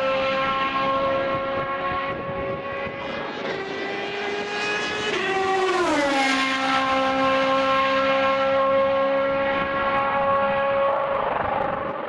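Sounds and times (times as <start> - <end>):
racing car engine at high revs: 0.0 - 12.0.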